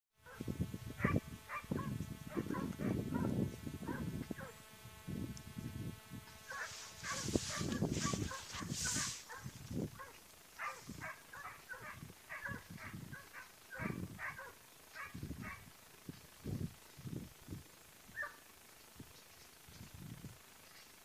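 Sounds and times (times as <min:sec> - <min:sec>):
dogs barking faint yaps: 0:00.2 - 0:04.6, 0:06.5 - 0:15.6
rumbling microphone noise: 0:00.2 - 0:18.3.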